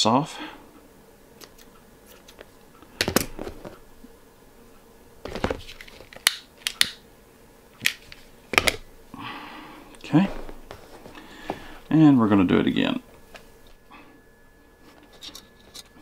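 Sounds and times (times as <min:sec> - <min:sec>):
scissors set down: 0:05.4 - 0:07.0.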